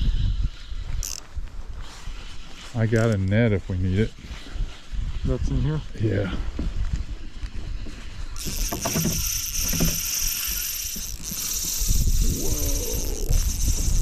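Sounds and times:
fishing reel drag buzzing: 0:00.0 - 0:03.2, 0:08.3 - 0:14.0
wind on microphone: 0:00.0 - 0:14.0.

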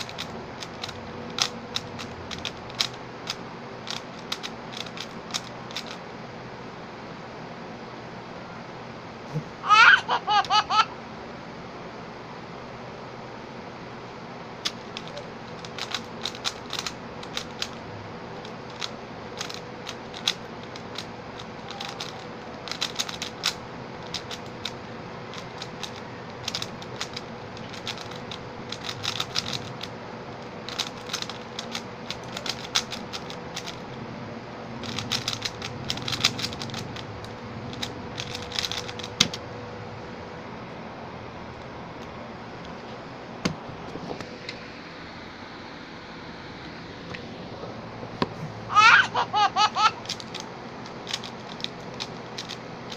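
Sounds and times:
puzzle cube plastic clicks: 0:00.0 - 0:06.0, 0:14.6 - 0:17.8, 0:18.4 - 0:33.8, 0:34.8 - 0:39.4, 0:50.0 - 0:52.9.

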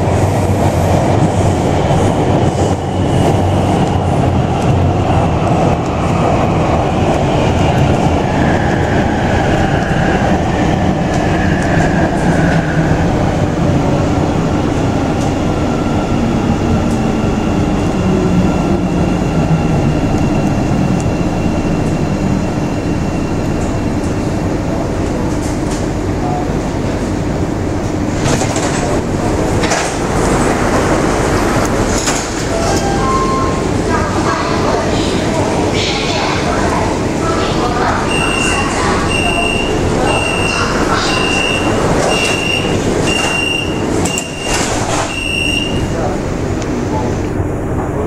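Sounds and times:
metro train running noise: 0:00.0 - 0:48.0
train doors sliding shut: 0:28.1 - 0:33.7, 0:38.2 - 0:46.1
high warning beep: 0:32.5 - 0:33.6, 0:38.0 - 0:45.9.

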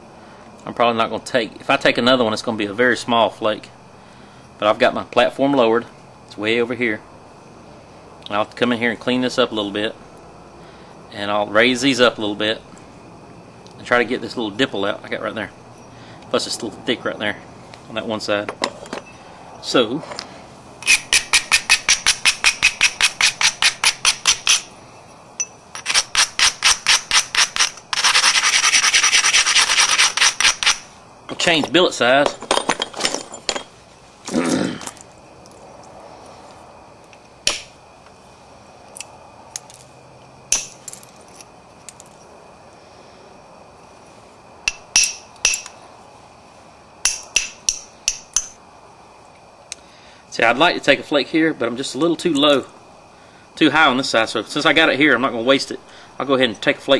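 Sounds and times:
stone grinding stone edge: 0:25.4 - 0:30.8
copper striking stone clicks: 0:40.5 - 0:40.8.

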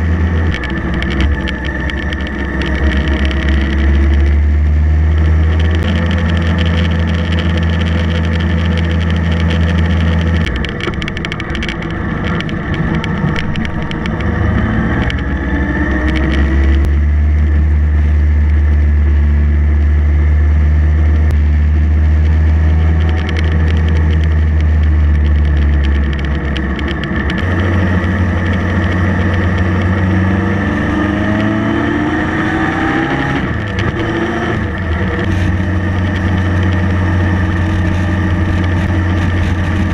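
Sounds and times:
motorcycle engine running: 0:00.0 - 0:39.9
road noise: 0:00.0 - 0:39.9
wind noise: 0:21.2 - 0:39.9.

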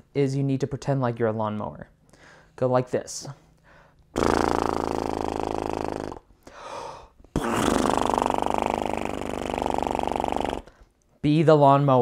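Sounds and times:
breath: 0:02.1 - 0:02.6, 0:03.6 - 0:04.1, 0:06.4 - 0:07.2
lip buzzing: 0:04.0 - 0:06.6, 0:07.2 - 0:11.0.

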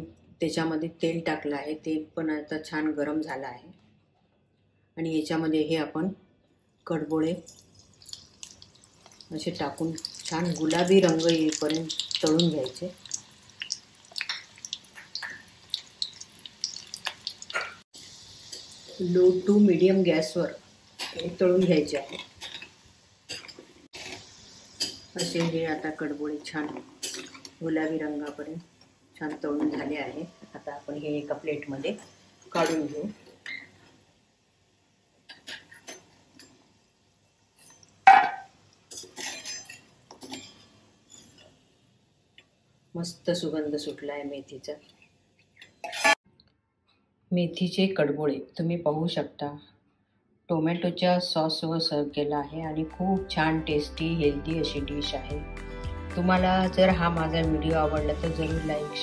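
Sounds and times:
dough frying in hot oil: 0:07.0 - 0:28.6.

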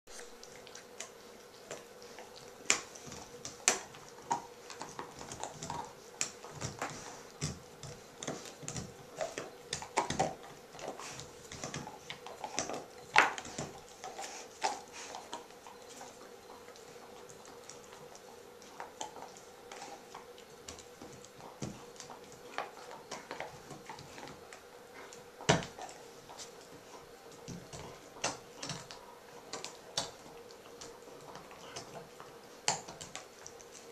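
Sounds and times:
dogs gnawing on chews: 0:00.1 - 0:33.9.

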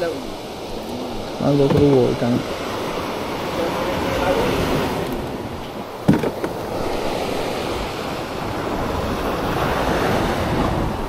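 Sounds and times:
surf washing onto beach: 0:00.0 - 0:11.0
wind on microphone: 0:00.0 - 0:11.0
brief knock: 0:06.1 - 0:06.6.

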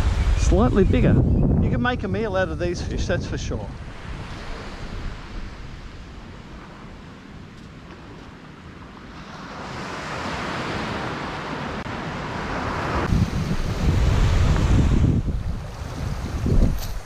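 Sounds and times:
wind buffeting microphone: 0:00.0 - 0:09.0, 0:12.3 - 0:17.0
surf washing up a beach: 0:03.7 - 0:17.0.

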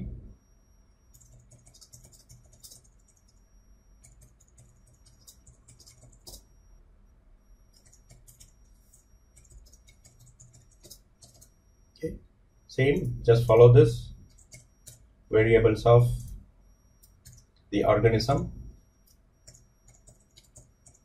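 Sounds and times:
faint keyboard typing: 0:01.1 - 0:06.6, 0:07.7 - 0:12.1, 0:14.2 - 0:15.1, 0:17.0 - 0:17.8, 0:19.0 - 0:21.0.

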